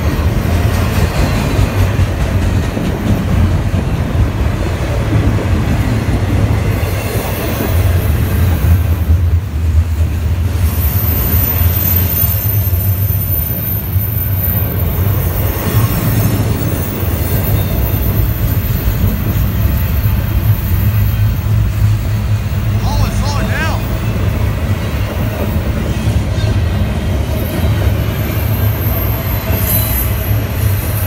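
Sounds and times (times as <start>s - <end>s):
freight train rumbling on rails: 0.0s - 31.0s.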